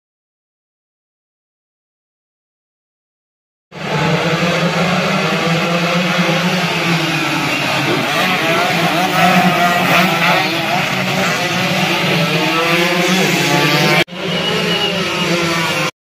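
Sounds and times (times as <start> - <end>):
motorcycle engines whining: 3.8 - 15.9.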